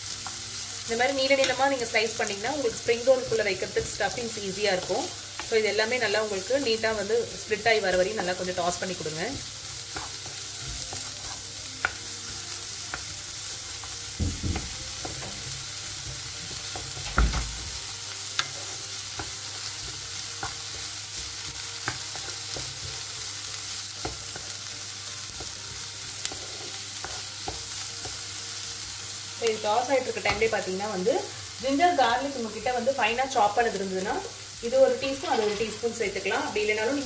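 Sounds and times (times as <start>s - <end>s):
onions sizzling in oil: 0.0s - 37.0s
wooden spatula scraping a pan: 35.0s - 36.0s.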